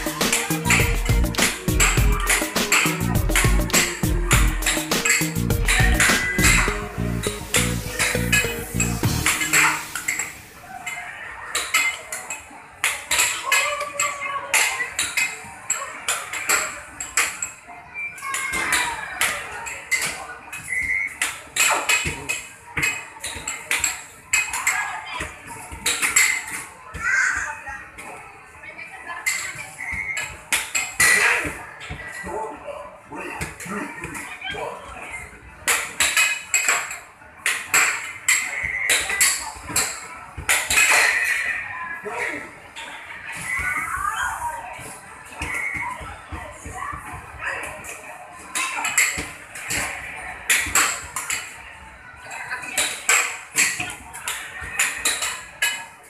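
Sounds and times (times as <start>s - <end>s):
basketballs knocking and clattering: 0.0s - 6.8s.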